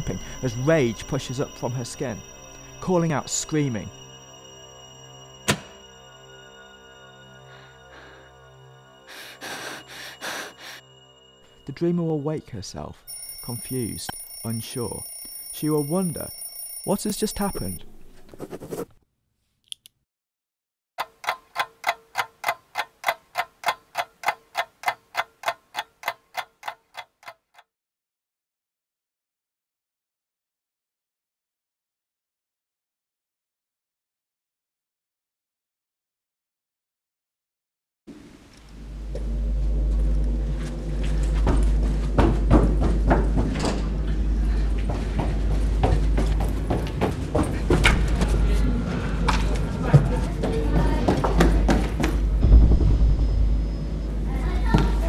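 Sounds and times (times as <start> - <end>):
low droning score: 0.0 - 13.1, 38.5 - 55.0
clock ticking: 13.1 - 17.8, 21.0 - 27.7
running footsteps: 40.5 - 48.6, 50.0 - 52.4.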